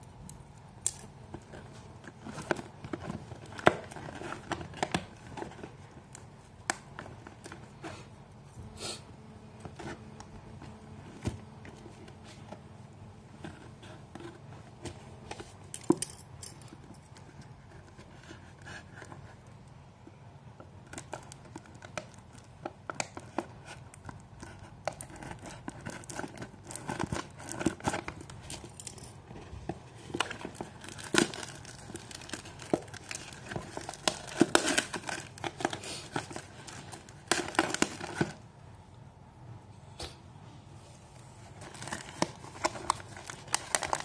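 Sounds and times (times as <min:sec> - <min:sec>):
plastic packaging crinkling and tearing: 0:20.8 - 0:38.4, 0:41.5 - 0:44.0.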